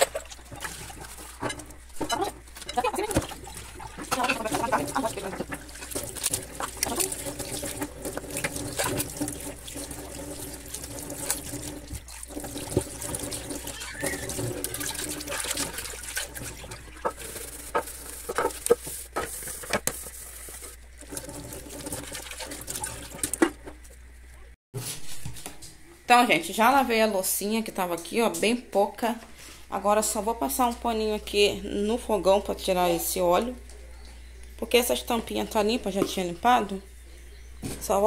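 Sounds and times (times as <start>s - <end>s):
water splashing: 0.0s - 23.6s.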